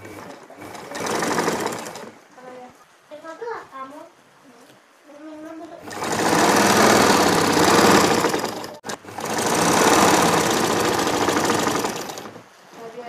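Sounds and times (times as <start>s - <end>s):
electric sewing machine running: 0.0s - 2.2s, 5.8s - 12.4s.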